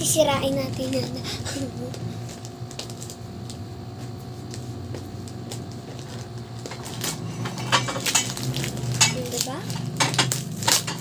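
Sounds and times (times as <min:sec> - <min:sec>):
steady low hum: 0:00.0 - 0:11.0
wrapping paper crinkling and tearing: 0:02.3 - 0:03.2, 0:08.0 - 0:11.0.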